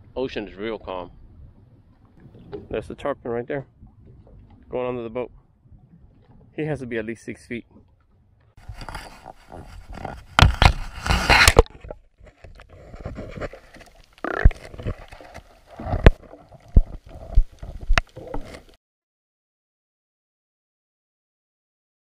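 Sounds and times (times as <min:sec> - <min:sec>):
muffled underwater sloshing: 0:00.4 - 0:18.8
water splashing and gurgling: 0:01.4 - 0:18.8.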